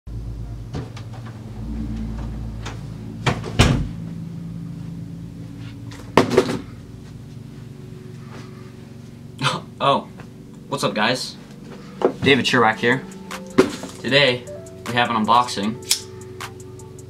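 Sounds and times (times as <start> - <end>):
low steady hum: 0.1 - 17.0.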